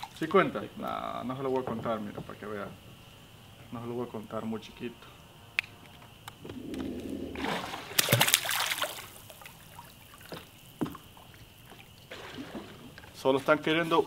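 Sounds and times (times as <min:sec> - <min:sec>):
fish splashing into water: 0:06.7 - 0:13.2.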